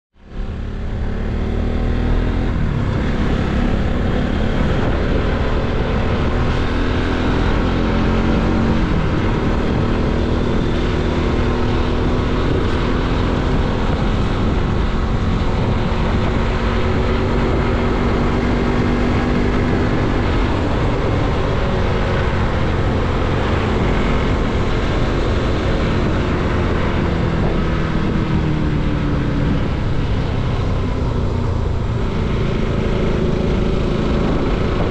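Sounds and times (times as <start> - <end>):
motorcycle engine running: 0.2 - 34.9
steady rush of noise: 2.5 - 34.9.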